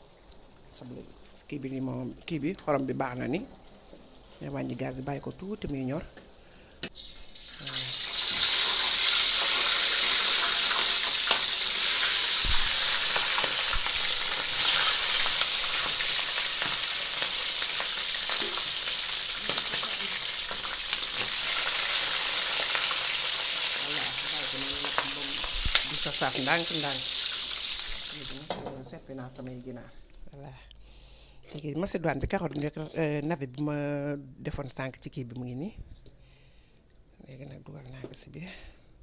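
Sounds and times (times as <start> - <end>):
chicken frying in hot oil: 7.0 - 28.7.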